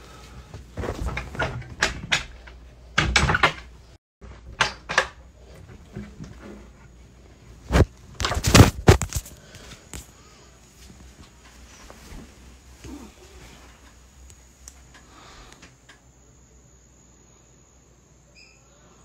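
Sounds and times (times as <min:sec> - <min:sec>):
knocks and clatters: 0:00.8 - 0:06.7.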